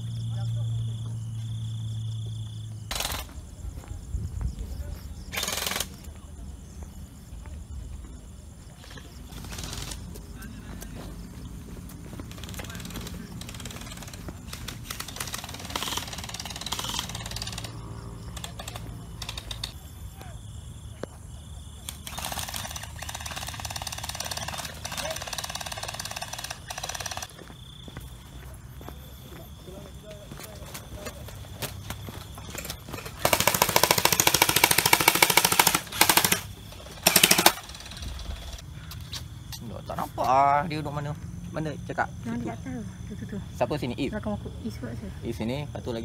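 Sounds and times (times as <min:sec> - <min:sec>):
gel blaster firing full auto: 0:12.7 - 0:17.8, 0:33.2 - 0:38.6.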